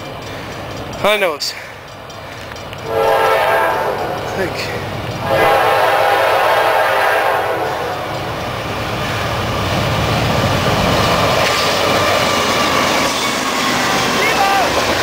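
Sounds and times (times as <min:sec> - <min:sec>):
locomotive rumble: 0:00.0 - 0:15.0
rush of passing train: 0:00.0 - 0:15.0
locomotive horn: 0:02.8 - 0:04.4, 0:05.2 - 0:08.1.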